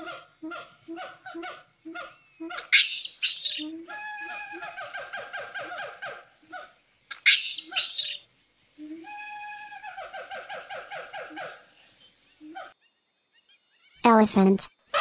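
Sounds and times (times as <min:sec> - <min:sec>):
monkey chattering: 0:01.0 - 0:03.7, 0:07.2 - 0:08.2
monkey screeches: 0:02.6 - 0:04.6, 0:07.2 - 0:08.2.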